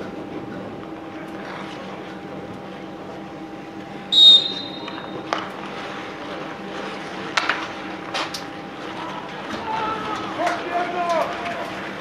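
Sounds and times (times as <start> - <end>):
low mechanical hum: 0.0 - 12.0
shrill whistle blast: 4.1 - 5.2.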